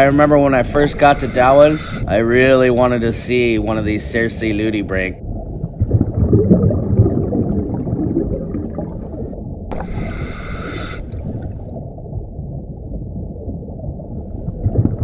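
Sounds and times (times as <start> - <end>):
regulator inhalation hiss: 0.8 - 2.1, 9.7 - 11.2
exhaled bubbles gurgling underwater: 5.2 - 15.0.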